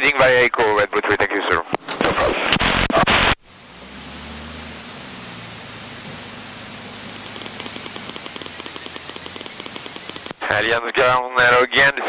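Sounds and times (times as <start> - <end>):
radio transmission: 1.0 - 3.4, 6.7 - 12.0
static hiss: 2.2 - 10.7
plane engine hum: 3.5 - 10.5
fast regular ticking: 4.8 - 10.6.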